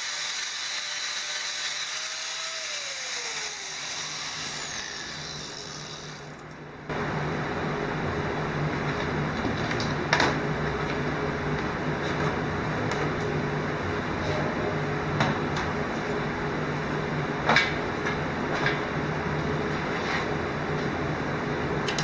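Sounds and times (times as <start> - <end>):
machine humming and hissing: 0.0 - 9.5.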